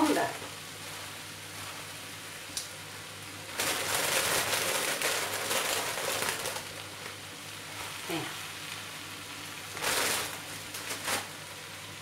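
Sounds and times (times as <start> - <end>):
frying pan sizzling: 0.0 - 12.0
plastic bag crinkling: 3.5 - 7.1, 9.7 - 11.3.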